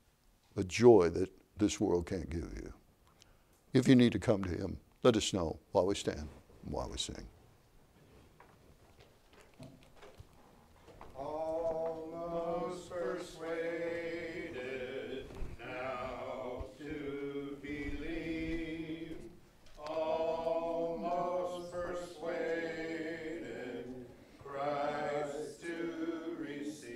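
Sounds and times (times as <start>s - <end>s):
congregation singing a hymn: 11.0s - 26.9s.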